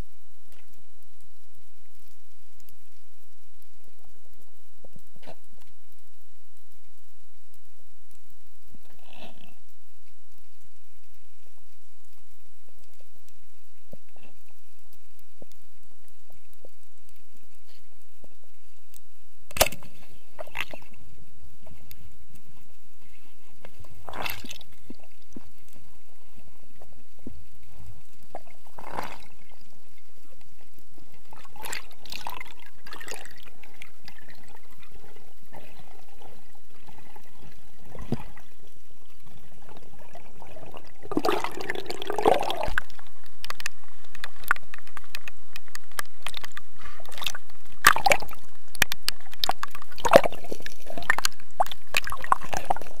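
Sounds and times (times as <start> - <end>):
underwater clicks and bubbling: 0.0 - 53.0
water splashing: 19.6 - 21.9, 23.0 - 53.0
water sloshing: 23.1 - 29.7, 31.1 - 53.0.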